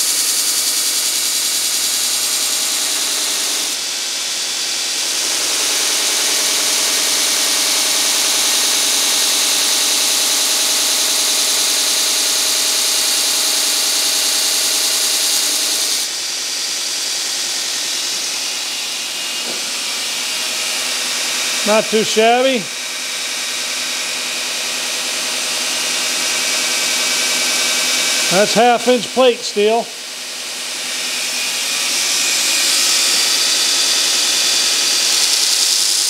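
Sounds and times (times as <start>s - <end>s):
belt grinder grinding steel hiss: 0.0s - 3.8s, 5.0s - 16.1s, 30.9s - 36.0s
grinder motor and belt running: 0.0s - 36.0s.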